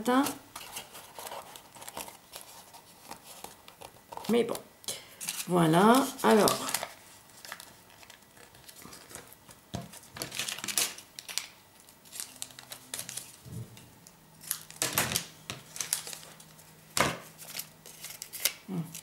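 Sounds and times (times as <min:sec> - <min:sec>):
paper and card rustling: 0:00.0 - 0:04.6, 0:05.2 - 0:13.6, 0:14.4 - 0:19.0.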